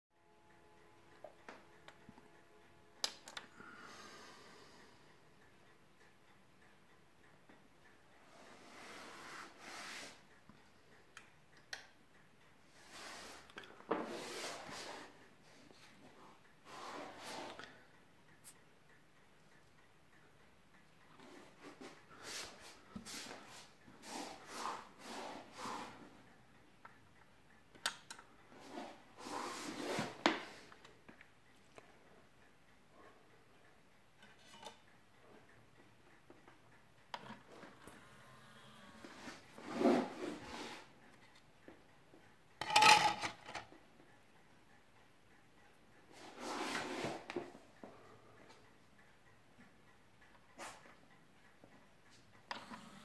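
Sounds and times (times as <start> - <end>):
faint ticking: 0.2 - 42.6, 43.6 - 46.6, 47.2 - 53.0
sharp clicks: 3.0 - 3.5, 26.8 - 28.3.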